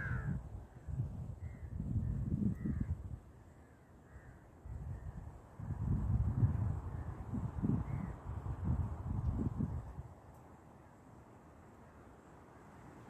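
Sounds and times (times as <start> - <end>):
crow cawing: 0.0 - 0.4, 3.6 - 4.5
wind buffeting microphone: 0.0 - 3.3, 4.6 - 10.2.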